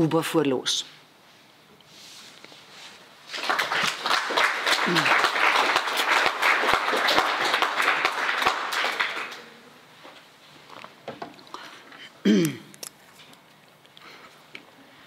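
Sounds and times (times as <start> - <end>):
audience applause: 3.3 - 9.6.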